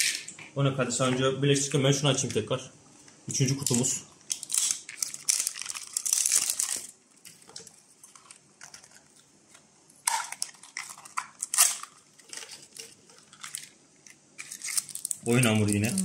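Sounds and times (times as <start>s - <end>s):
plastic wrappers crinkling: 3.3s - 16.0s.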